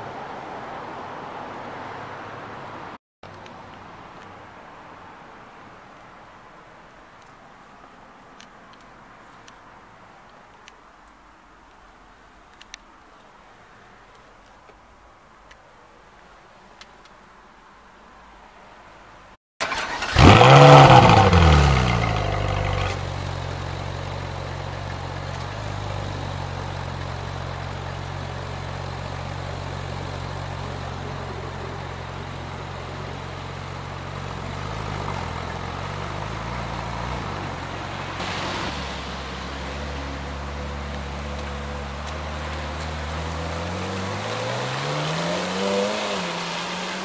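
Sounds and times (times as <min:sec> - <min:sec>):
sports car engine revving and idling: 0:20.1 - 0:38.5, 0:39.1 - 0:47.0.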